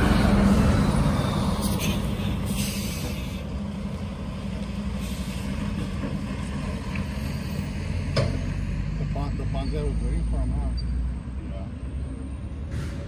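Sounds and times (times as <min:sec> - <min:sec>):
truck diesel engine hum: 0:00.0 - 0:13.0
brief air hisses: 0:01.6 - 0:03.4, 0:12.7 - 0:13.0.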